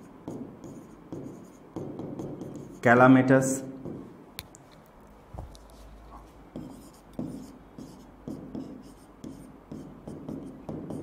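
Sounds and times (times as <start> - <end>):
pen tapping and scratching screen: 0.0 - 2.8, 5.4 - 11.0.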